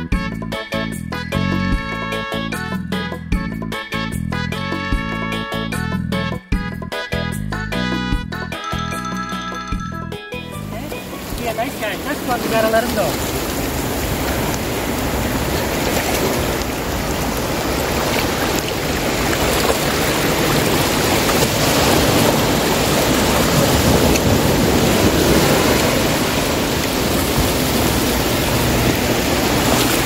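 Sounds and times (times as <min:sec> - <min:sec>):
surf washing on beach: 0:10.8 - 0:30.0.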